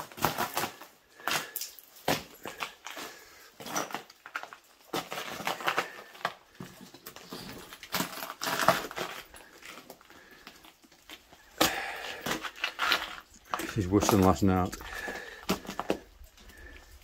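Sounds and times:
footsteps crunching on ice and snow: 0:00.2 - 0:17.0.

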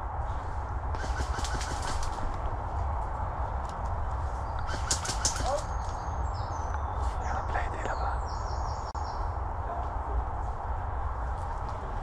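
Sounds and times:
wind on camera mic: 0:00.0 - 0:12.0
airsoft guns firing bursts: 0:01.0 - 0:02.2, 0:04.6 - 0:05.7.

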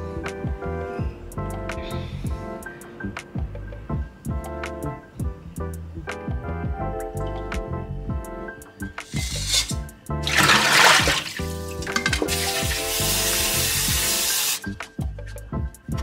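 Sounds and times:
background music: 0:00.0 - 0:16.0
kitchen tap running: 0:09.2 - 0:14.6
water splashing in steel bowl: 0:09.2 - 0:14.6.

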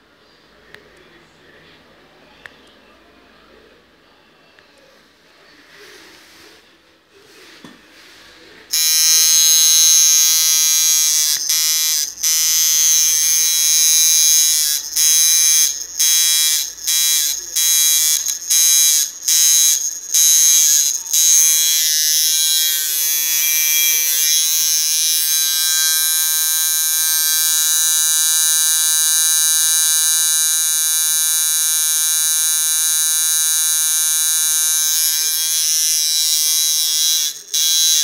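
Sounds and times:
tattoo machine buzzing: 0:08.7 - 0:38.0.

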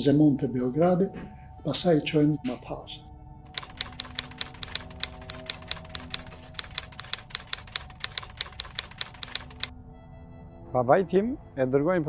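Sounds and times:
typewriter key strikes: 0:03.5 - 0:09.7.

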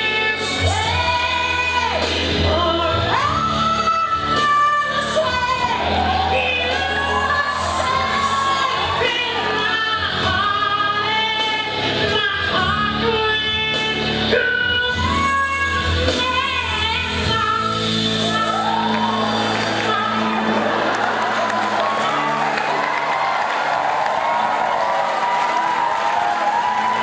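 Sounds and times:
person singing into microphone: 0:00.0 - 0:21.4
backing music: 0:00.0 - 0:27.0.

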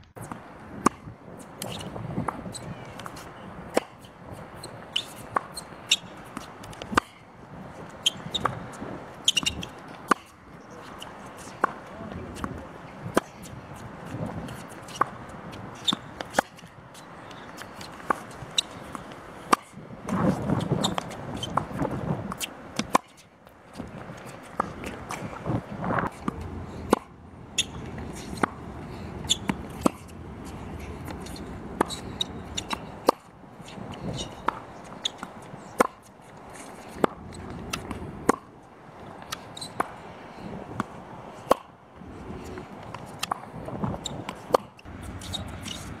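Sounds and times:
tennis ball bouncing on hard court: 0:00.3 - 0:07.2, 0:08.0 - 0:08.6, 0:09.2 - 0:23.2, 0:23.8 - 0:38.5, 0:40.8 - 0:41.7, 0:44.0 - 0:46.0
tennis ball struck by racket: 0:14.0 - 0:15.2, 0:26.0 - 0:33.3, 0:34.1 - 0:36.1, 0:36.9 - 0:38.5, 0:40.8 - 0:41.7, 0:44.0 - 0:45.9.

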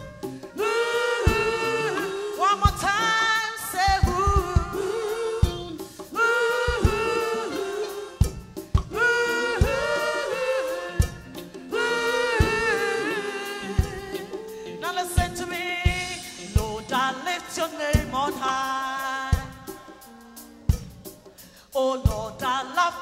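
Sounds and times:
band playing gospel music: 0:00.0 - 0:23.0
backing singers: 0:00.6 - 0:03.4, 0:04.4 - 0:15.4
woman singing lead vocal: 0:00.6 - 0:20.6, 0:21.7 - 0:23.0
drum hits: 0:08.2 - 0:10.2.

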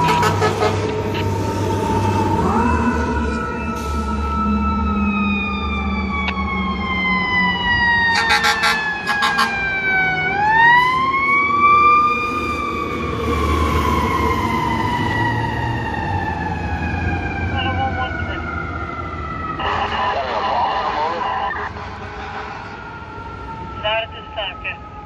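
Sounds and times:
air horn blasts: 0:00.0 - 0:00.9, 0:08.1 - 0:09.6, 0:19.6 - 0:22.8
truck engine rumbling: 0:00.0 - 0:25.0.

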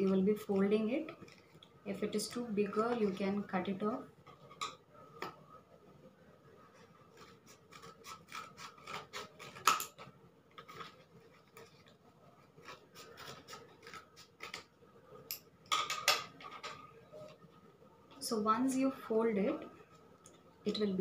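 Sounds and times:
scissors snipping cardboard: 0:07.2 - 0:10.0.

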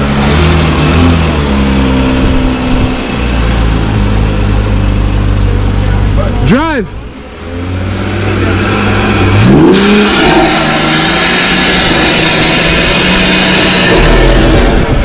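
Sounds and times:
vehicle engine idling and revving: 0:00.0 - 0:15.0.

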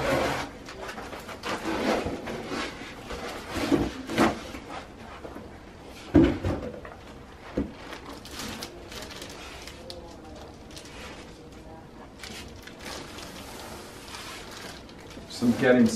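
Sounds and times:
plastic wrap rustling: 0:00.0 - 0:04.9, 0:07.0 - 0:15.9
foam packing rubbing and scraping: 0:00.0 - 0:05.2, 0:12.2 - 0:15.9.

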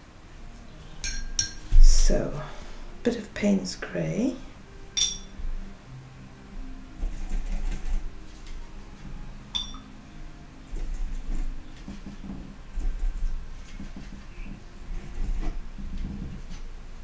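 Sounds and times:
clinks on ceramic palette: 0:05.0 - 0:05.3, 0:09.6 - 0:09.8.

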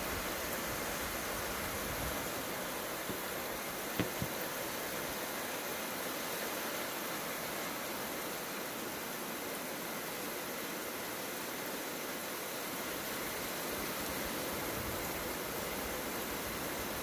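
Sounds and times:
heavy rain on plants: 0:00.0 - 0:17.0
brief taps: 0:04.0 - 0:04.3.

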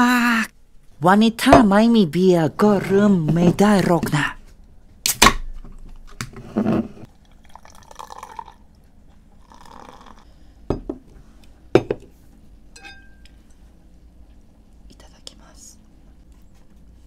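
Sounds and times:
beer fizzing into a glass: 0:07.1 - 0:08.7, 0:09.4 - 0:10.3
glass knocking on a table: 0:10.7 - 0:11.0, 0:11.8 - 0:12.1
glass ringing: 0:12.7 - 0:13.3.

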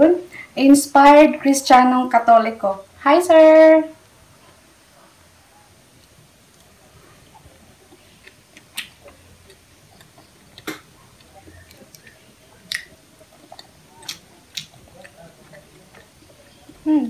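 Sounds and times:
quiet chewing: 0:04.4 - 0:17.0
sharp mouth clicks and smacks: 0:07.9 - 0:16.8.

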